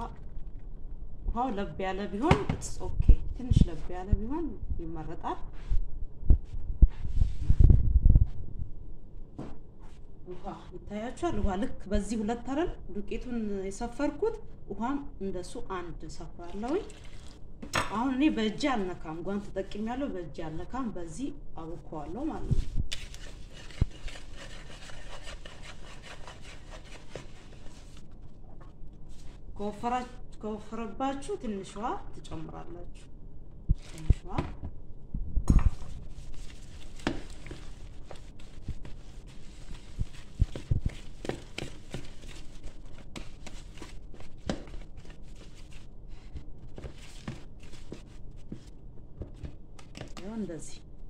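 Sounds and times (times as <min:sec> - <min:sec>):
whisk scraping through batter: 0:22.9 - 0:28.0, 0:36.2 - 0:45.8.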